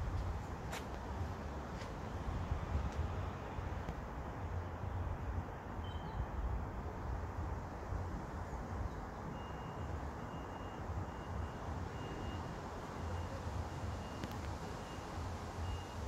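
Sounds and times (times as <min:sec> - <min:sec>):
heavy low street rumble: 0:00.0 - 0:16.0
vehicle reversing alarm beeping: 0:09.3 - 0:16.0.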